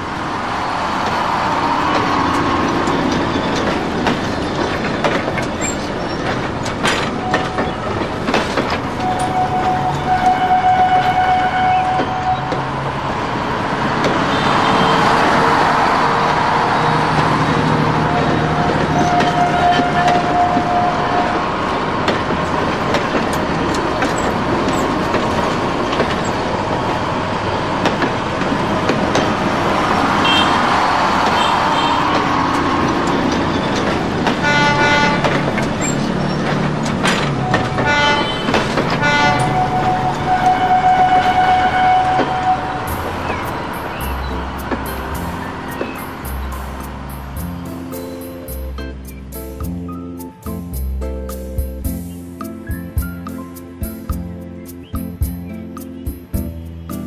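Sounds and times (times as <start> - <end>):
traffic noise: 0.0 - 57.0
vehicle horn: 9.0 - 12.8, 14.2 - 15.8, 18.0 - 21.5, 30.2 - 30.7, 31.3 - 32.3, 34.2 - 35.7, 37.4 - 43.1.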